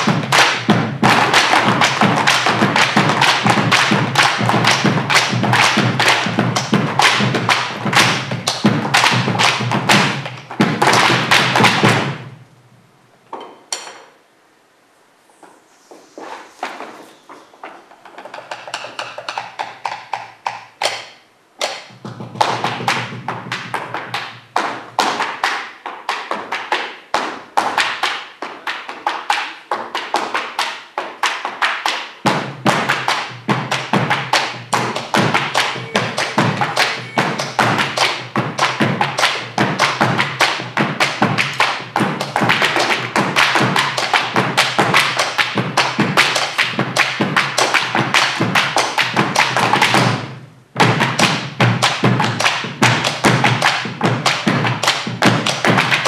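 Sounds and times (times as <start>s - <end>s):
boot stamping on wooden stage: 0.0s - 12.3s, 29.7s - 56.0s
drums with steady low beat: 0.0s - 12.4s, 32.2s - 56.0s.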